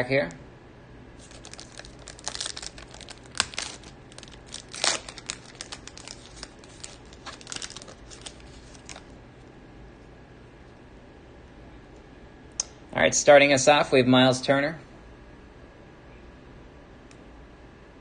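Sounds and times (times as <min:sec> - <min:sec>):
card pack wrapper tearing and crinkling: 0:01.2 - 0:09.1.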